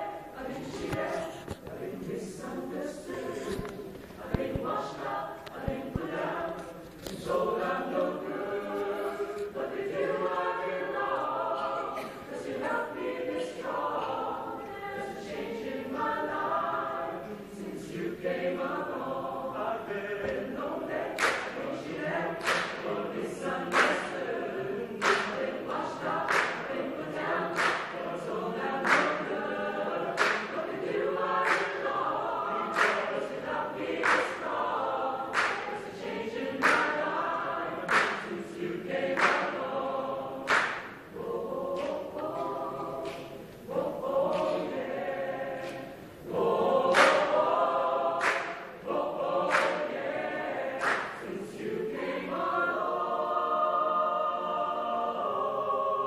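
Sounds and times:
mixed choir singing a cappella: 0.0s - 56.0s
sharp hand claps: 21.2s - 21.6s, 22.4s - 22.9s, 23.7s - 24.2s, 25.0s - 25.5s, 26.3s - 26.8s, 27.5s - 28.0s, 28.8s - 29.3s, 30.2s - 30.6s, 31.4s - 31.9s, 32.8s - 33.1s, 34.0s - 34.5s, 35.3s - 35.8s, 36.6s - 37.0s, 37.9s - 38.3s, 39.2s - 39.6s, 40.5s - 41.0s, 41.8s - 43.4s, 44.3s - 44.7s, 46.9s - 47.4s, 48.2s - 48.8s, 49.5s - 50.0s, 50.8s - 51.3s.

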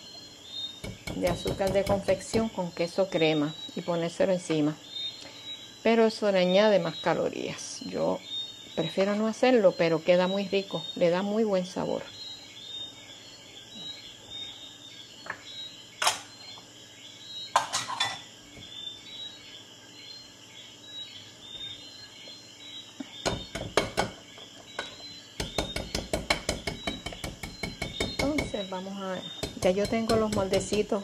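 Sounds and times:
whisk tapping: 29.4s - 31.0s.

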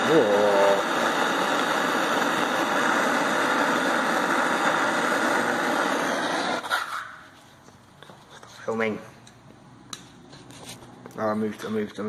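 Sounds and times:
blowtorch flame hissing: 0.0s - 7.0s.

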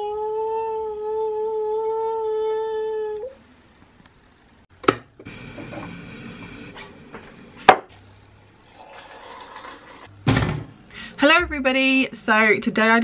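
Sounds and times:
kettle heating hiss: 4.8s - 7.7s
water pouring into a mug: 8.6s - 10.0s.

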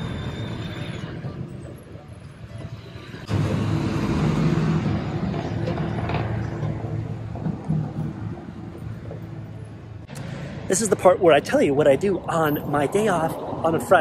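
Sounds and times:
bus engine running: 0.0s - 10.5s
road rumble: 0.0s - 14.0s.

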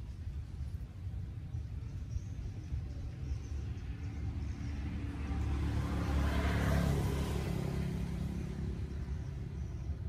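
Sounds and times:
vehicle passing by: 2.8s - 10.0s.

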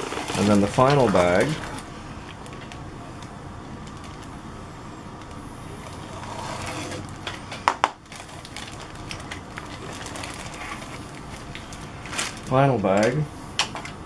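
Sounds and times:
plastic bag rustling and crinkling: 0.0s - 4.4s, 5.2s - 14.0s.

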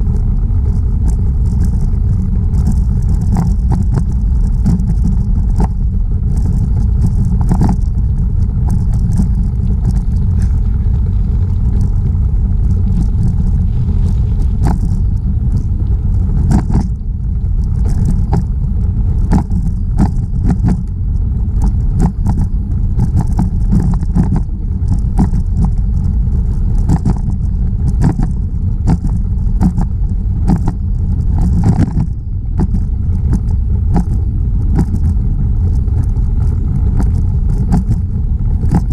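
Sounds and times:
bicycle clicks and rattles: 0.0s - 38.9s
wind buffeting microphone: 0.0s - 38.9s.

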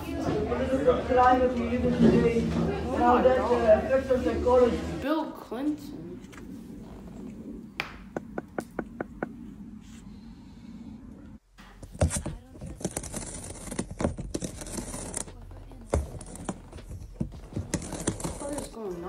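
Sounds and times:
cat gnawing cardboard box: 11.8s - 18.8s.

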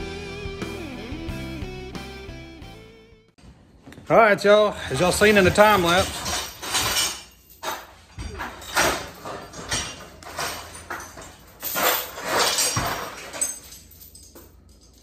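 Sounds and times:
steel chains clanking and rattling: 4.9s - 15.0s.

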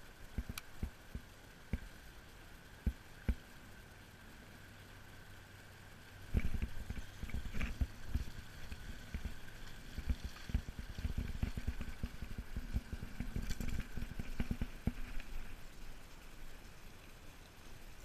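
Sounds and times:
scattered clicks: 0.3s - 1.9s
wind buffeting microphone: 6.3s - 15.2s.

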